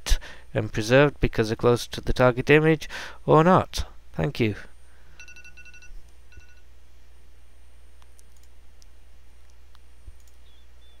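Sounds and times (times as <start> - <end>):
low electrical hum: 0.0 - 11.0
computer clicks: 8.0 - 10.5.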